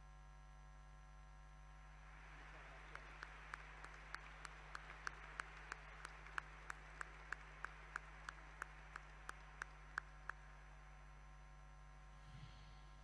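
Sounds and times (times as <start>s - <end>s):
faint applause: 1.8s - 10.8s
nearby hands clapping steadily: 1.9s - 10.6s.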